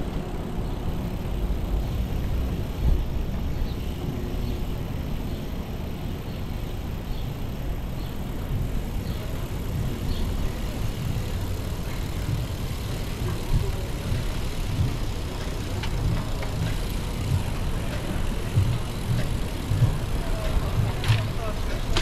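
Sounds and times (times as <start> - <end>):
bicycle tyre and road noise: 0.0 - 22.0
faint clicks: 11.1 - 22.0.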